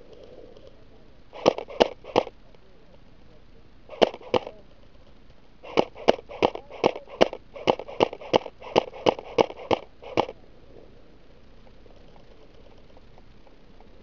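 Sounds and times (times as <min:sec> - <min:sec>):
airsoft gun shots: 0:01.4 - 0:02.3, 0:03.9 - 0:04.6, 0:05.6 - 0:10.4.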